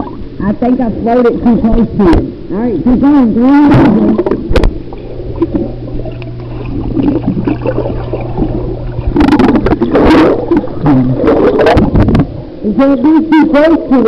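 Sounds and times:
steady low hum: 0.0s - 14.0s
underwater bubbling and water movement: 0.0s - 14.0s
bubbles rushing and splashing: 3.7s - 12.4s.

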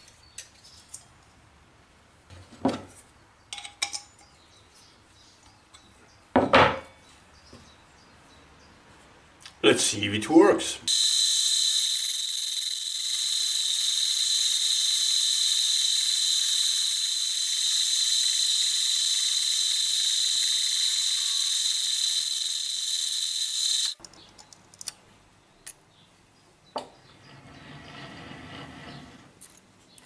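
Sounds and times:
milling machine saw whine: 10.9s - 24.0s.

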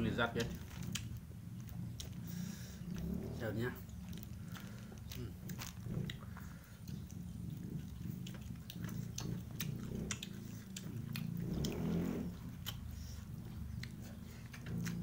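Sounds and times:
chewing and lip-smacking: 0.3s - 15.0s
wet mouth clicks: 5.0s - 15.0s.

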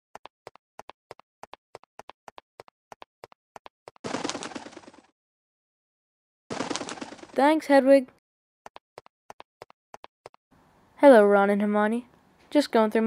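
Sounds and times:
wing flaps flutter: 3.9s - 5.1s, 6.5s - 7.7s.

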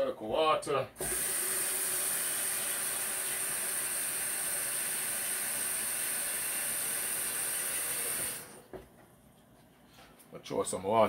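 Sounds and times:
kitchen tap running: 1.0s - 8.7s.

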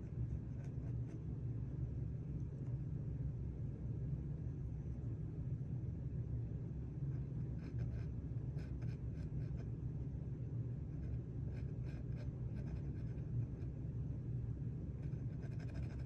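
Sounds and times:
pencil scratching on panel: 0.0s - 1.2s, 7.1s - 9.7s, 11.0s - 13.8s, 15.0s - 16.0s
steady low hum: 0.0s - 16.0s.

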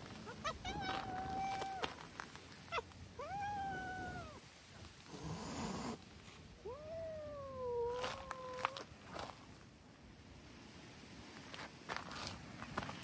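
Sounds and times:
cat meowing: 0.2s - 1.9s, 2.7s - 4.4s.

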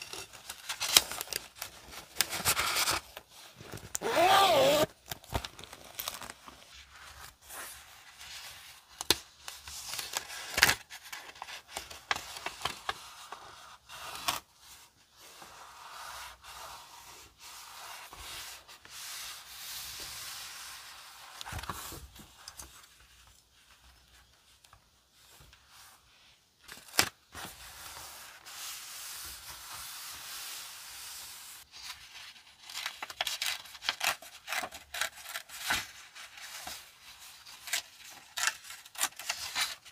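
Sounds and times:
paper rustling: 0.0s - 14.4s, 31.7s - 39.9s
paper crinkles: 31.7s - 39.9s.

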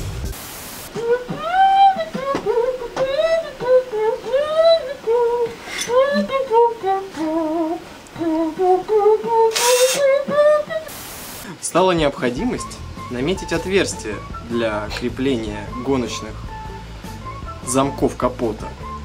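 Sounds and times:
short hiss: 9.4s - 10.2s, 10.9s - 11.6s.

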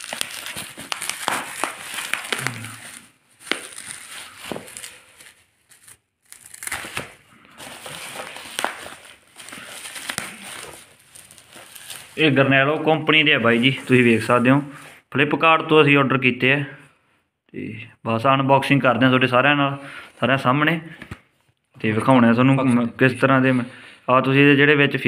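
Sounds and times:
bubble wrap crinkling: 0.0s - 15.0s.

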